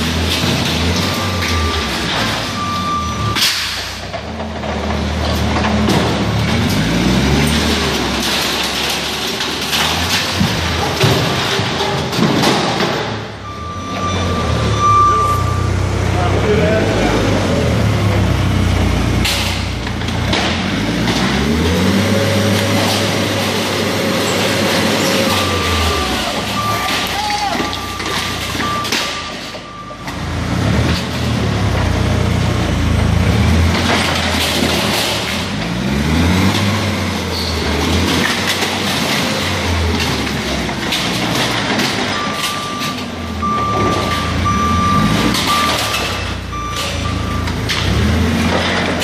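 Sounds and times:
forklift engine running: 0:00.0 - 0:49.0
wall crashing and cracking: 0:04.6 - 0:13.2
high beeps: 0:13.4 - 0:15.8, 0:25.2 - 0:30.2, 0:42.2 - 0:47.6.

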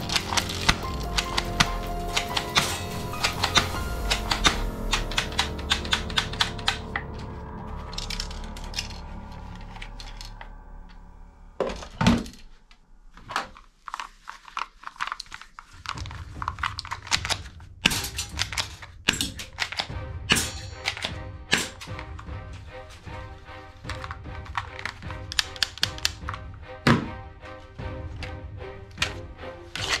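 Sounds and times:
toy rifle clicking: 0:00.0 - 0:06.8, 0:13.9 - 0:19.9, 0:20.6 - 0:22.0, 0:23.9 - 0:26.4
plastic toy pistol clicks: 0:16.6 - 0:19.9, 0:24.8 - 0:26.3.

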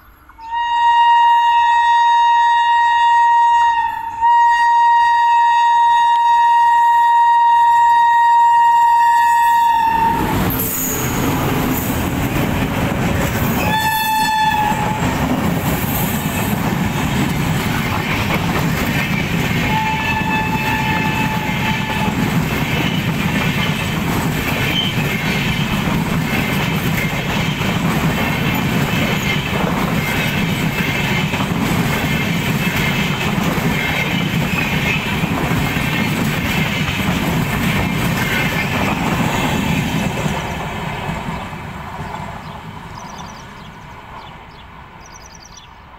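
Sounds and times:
locomotive horn: 0:00.4 - 0:11.2, 0:13.6 - 0:15.2, 0:19.6 - 0:22.3
train wheels rumbling on rails: 0:09.3 - 0:45.6.

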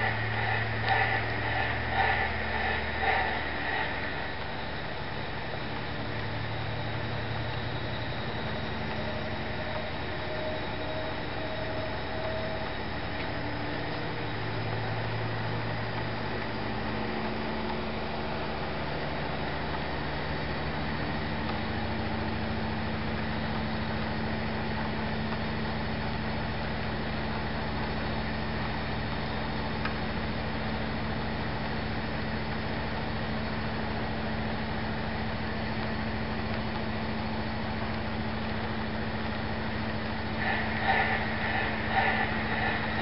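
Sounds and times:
model train wheels rolling: 0:00.0 - 0:19.4, 0:39.6 - 0:43.0
constant low hum: 0:00.0 - 0:43.0.

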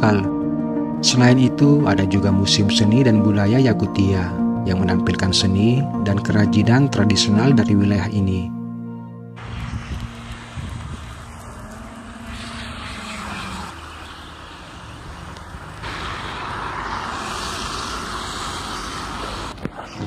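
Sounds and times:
car engine hum: 0:09.4 - 0:19.6
road hiss: 0:09.4 - 0:20.0.

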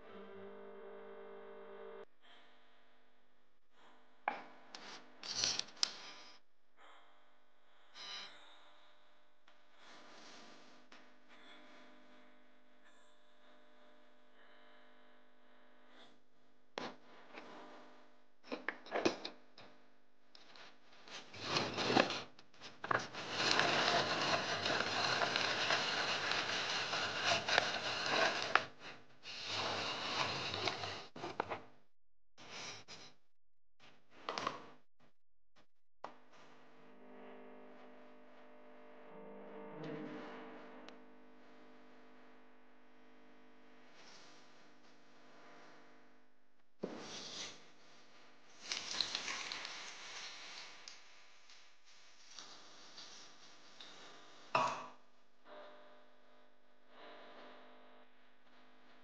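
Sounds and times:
plastic rubbing and scraping: 0:21.1 - 0:31.7.

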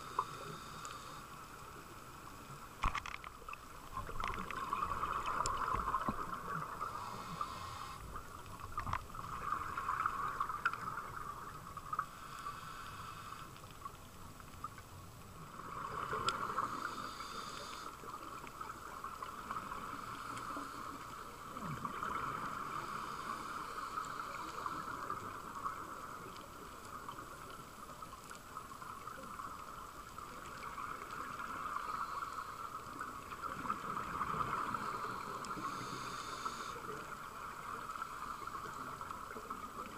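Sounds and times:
diver breathing underwater: 0:00.0 - 0:01.4, 0:05.3 - 0:08.3, 0:11.9 - 0:13.6, 0:15.8 - 0:18.2, 0:19.7 - 0:25.4, 0:33.8 - 0:37.2.

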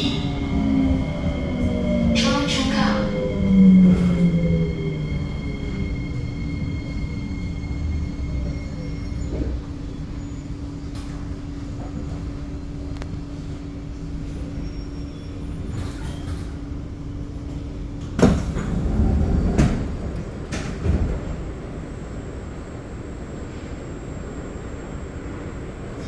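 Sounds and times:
train carriage hum: 0:00.0 - 0:26.0
train doors sliding open: 0:15.4 - 0:16.7, 0:17.5 - 0:21.8.

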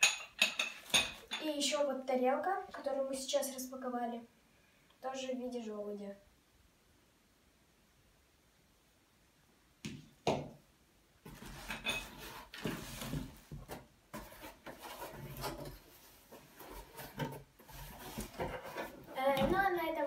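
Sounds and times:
cardboard box scraping and rustling: 0:11.3 - 0:19.1.

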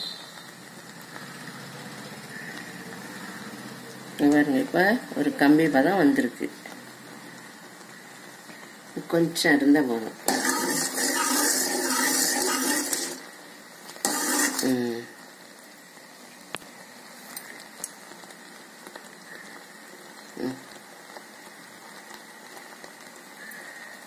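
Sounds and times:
syrup bubbling: 0:10.2 - 0:16.1.

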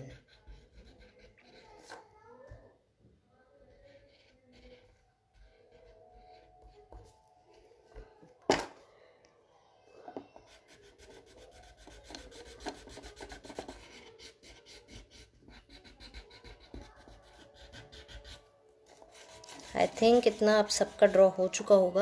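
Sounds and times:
scratchy rubbing on paper: 0:10.5 - 0:22.0.

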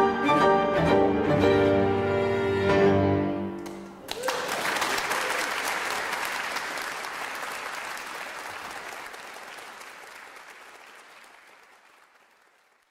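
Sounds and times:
audience applauding: 0:03.6 - 0:12.9.

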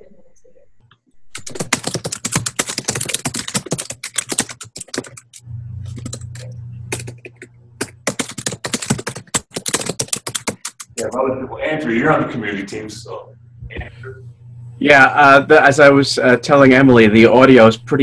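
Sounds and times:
rapid keyboard typing: 0:01.3 - 0:11.3
steady low hum: 0:04.0 - 0:08.8, 0:10.6 - 0:18.0.

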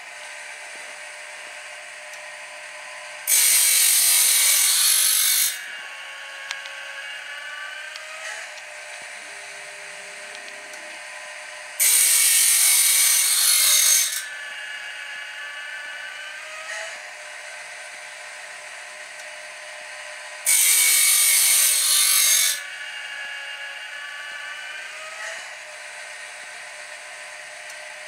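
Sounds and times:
sharpener machine whirring: 0:00.9 - 0:28.0
grinding wheel rasping on blade: 0:02.9 - 0:17.6, 0:19.6 - 0:25.8.

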